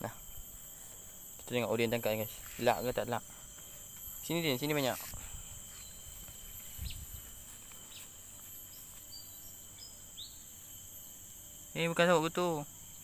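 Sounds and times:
insects chorus: 0.0s - 13.0s
faint bird chirps: 5.7s - 6.2s, 6.8s - 10.6s.

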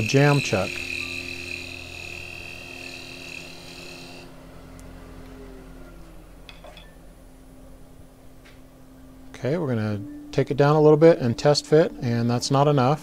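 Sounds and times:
wood lathe humming: 0.0s - 4.6s
parting tool scraping whine: 0.0s - 6.3s.

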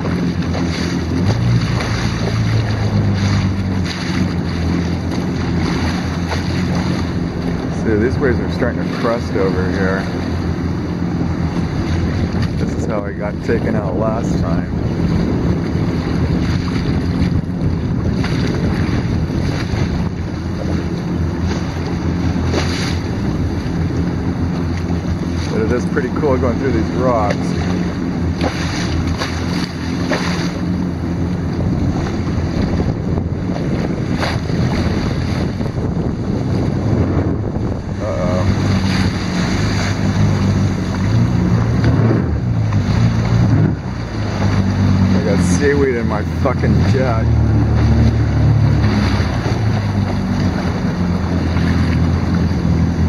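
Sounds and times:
jet ski engine humming: 0.0s - 53.0s
water washing around hull: 0.0s - 53.0s
wind buffeting microphone: 0.0s - 53.0s.

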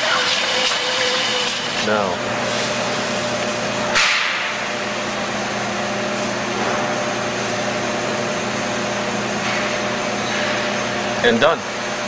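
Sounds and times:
induction heater electrical hum: 0.0s - 12.0s.

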